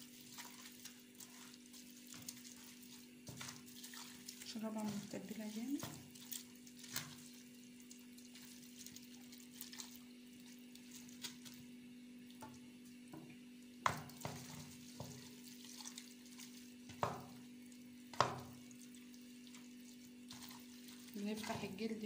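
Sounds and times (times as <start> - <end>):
hands squishing wet marinade: 0.0 - 22.0
meat knocking on metal tray: 13.2 - 15.2, 16.9 - 17.4, 18.1 - 18.6.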